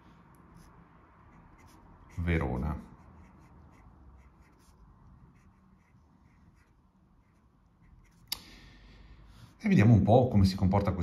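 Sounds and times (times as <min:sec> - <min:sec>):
pen nib scratching on paper: 0:00.5 - 0:08.3.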